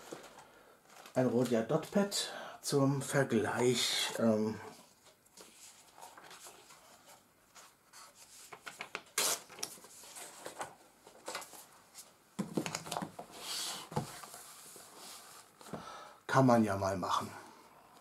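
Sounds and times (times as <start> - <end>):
paper rubbing and rustling: 5.4 - 11.7.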